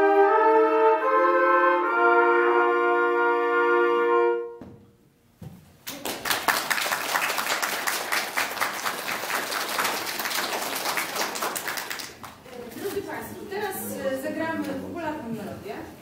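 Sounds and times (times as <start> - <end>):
audience applauding: 5.8 - 12.5.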